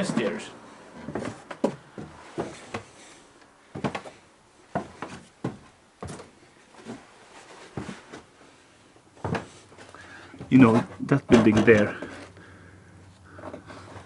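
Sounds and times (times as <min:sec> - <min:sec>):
footsteps on wooden stairs: 0:01.0 - 0:03.0, 0:03.6 - 0:07.1, 0:07.7 - 0:08.3, 0:09.2 - 0:09.6, 0:10.4 - 0:12.2.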